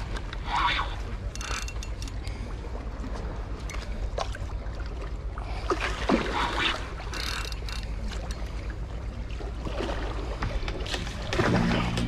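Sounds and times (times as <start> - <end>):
steady low rumble: 10.2 - 12.0.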